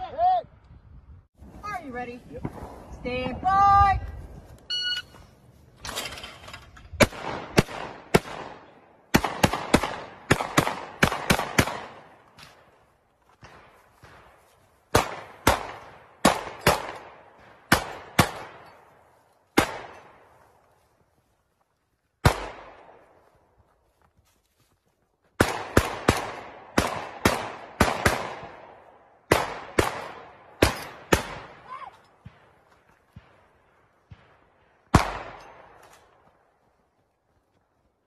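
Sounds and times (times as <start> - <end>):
shotgun shots with echo: 7.0 - 12.1, 34.1 - 35.8.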